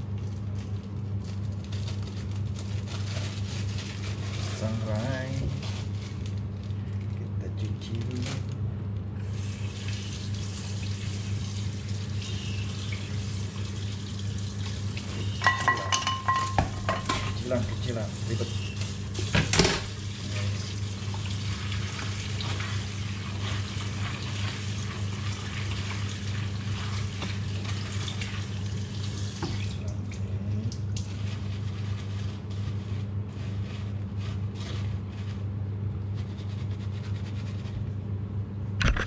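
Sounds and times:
steady low hum: 0.0s - 39.0s
tap water running into sink: 23.8s - 29.9s.

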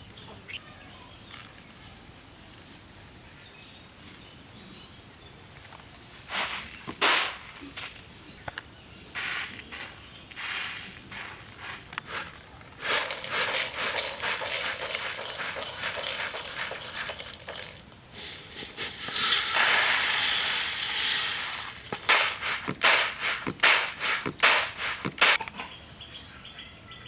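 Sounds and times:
seeds clattering on bamboo tray: 9.2s - 25.4s
seeds pouring rattle: 11.2s - 25.4s.

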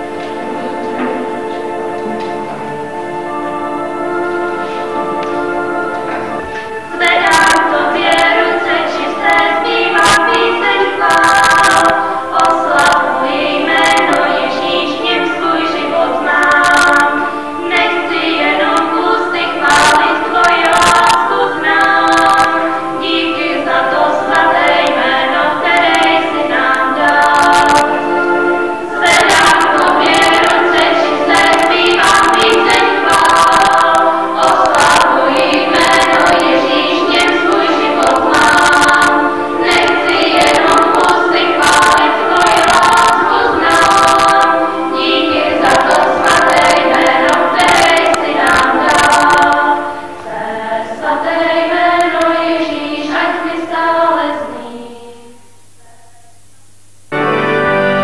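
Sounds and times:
women's choir singing a hymn: 0.0s - 55.5s.

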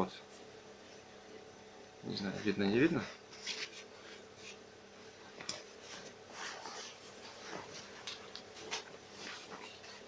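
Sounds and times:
denim rustling on a table: 5.4s - 10.0s.

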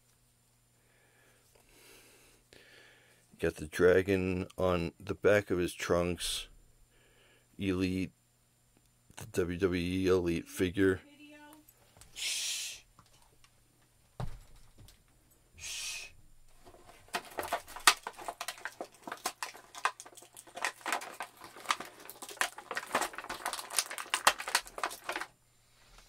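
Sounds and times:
soft thump: 14.2s - 14.6s
plastic packaging crackling: 16.5s - 25.4s.

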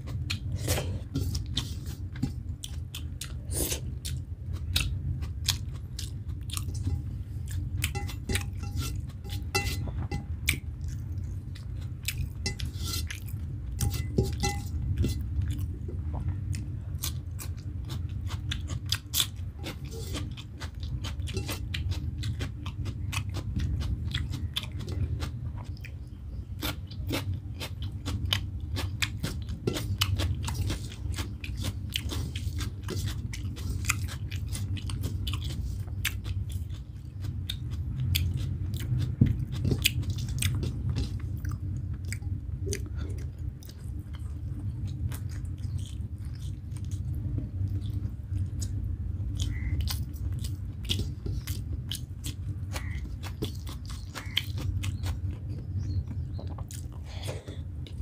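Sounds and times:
person chewing wetly: 0.0s - 57.2s
steady low hum: 0.0s - 58.0s
fingers working rice on plate: 0.1s - 3.8s, 5.5s - 10.6s, 11.6s - 15.6s, 26.6s - 36.3s.

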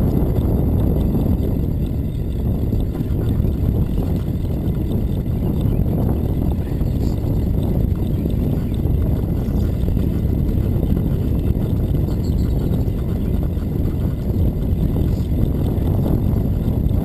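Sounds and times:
bicycle rolling on asphalt: 0.0s - 17.0s
wind on microphone: 0.0s - 17.0s.

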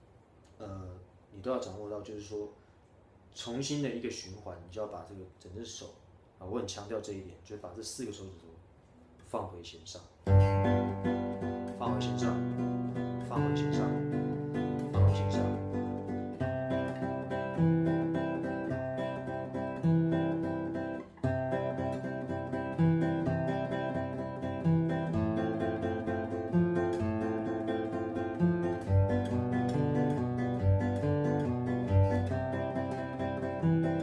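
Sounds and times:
fingerpicked acoustic guitar: 10.2s - 34.0s.

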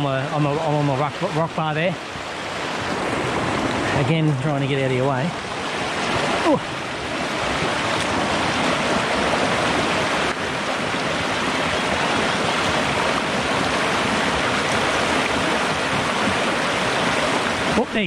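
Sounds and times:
stream running over rocks: 0.0s - 18.0s.

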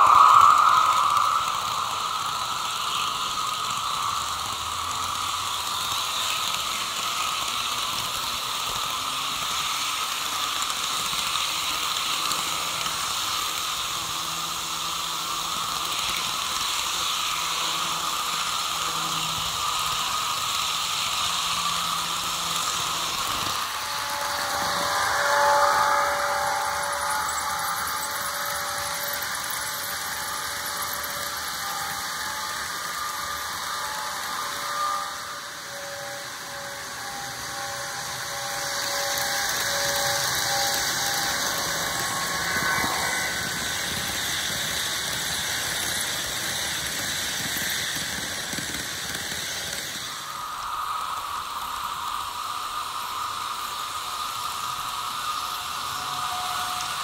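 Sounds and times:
steady tones: 0.0s - 6.0s, 22.1s - 45.1s
small electric motor whirring: 0.0s - 57.0s.

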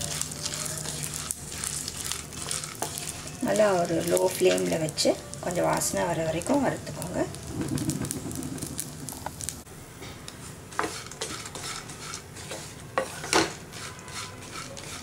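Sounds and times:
seeds rattling in a pan: 0.0s - 9.6s
light sizzle: 0.0s - 15.0s.

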